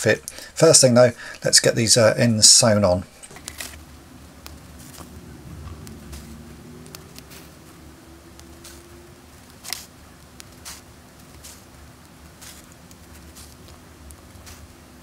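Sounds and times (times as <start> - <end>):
small ticks: 4.4 - 7.5, 8.3 - 14.7
thread swishing: 5.8 - 7.6, 8.4 - 14.8.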